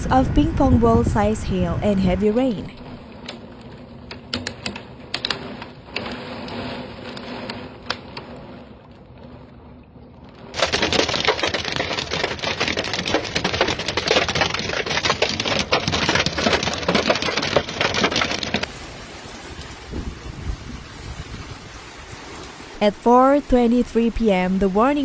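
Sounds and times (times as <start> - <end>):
hail pelting ground and truck: 0.0 - 8.6, 10.3 - 25.0
rain hiss: 18.1 - 25.0.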